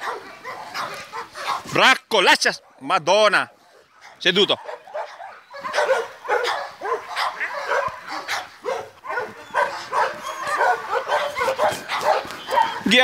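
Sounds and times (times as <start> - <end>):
dog barking: 0.0 - 1.8, 3.7 - 13.0.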